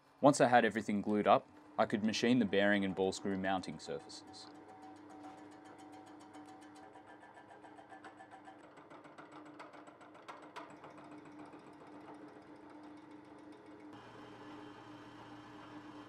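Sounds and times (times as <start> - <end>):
spindle hum: 0.7 - 7.8, 13.8 - 16.0
milling cutter ticking on metal: 1.9 - 13.7.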